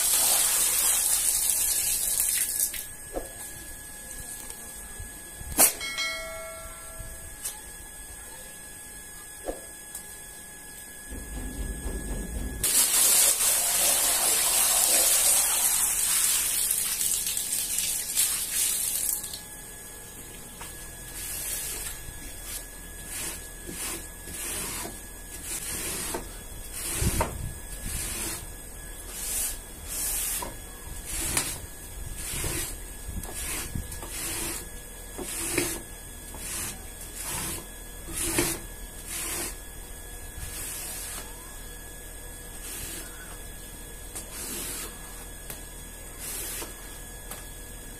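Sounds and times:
water splashing onto rug: 0.0s - 2.9s, 12.7s - 19.4s.

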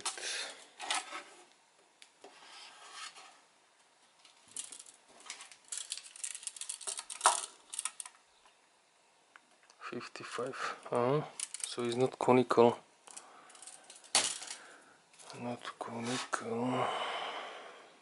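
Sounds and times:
tape measure blade rattling: 5.6s - 8.1s.

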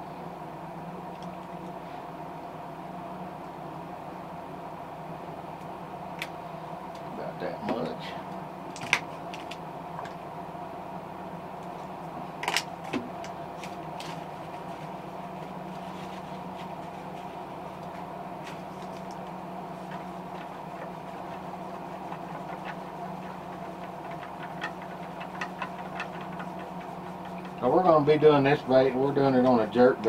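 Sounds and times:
small compressor humming: 0.0s - 30.0s
paint bottles clicking and tapping: 22.1s - 27.6s.

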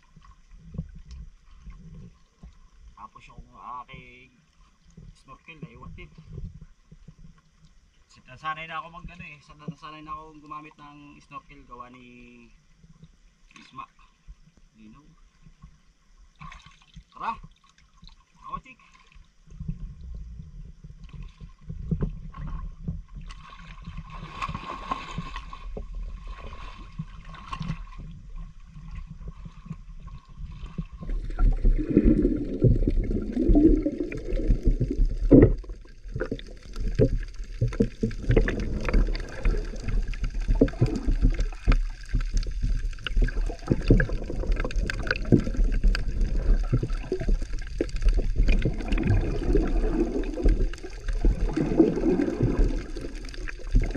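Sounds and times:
underwater churning water: 0.0s - 3.0s, 15.4s - 53.9s
underwater clicks: 30.9s - 53.9s.

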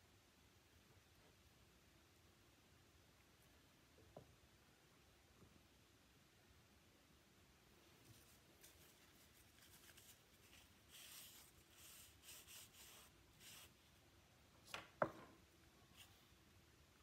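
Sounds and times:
wet paper towel wiping wood: 8.6s - 13.8s.

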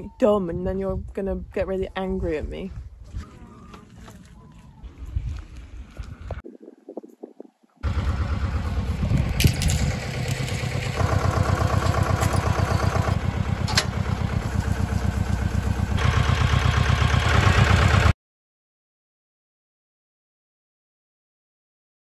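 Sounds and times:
tractor engine running: 7.8s - 18.1s
metal clanks: 9.2s - 14.6s.

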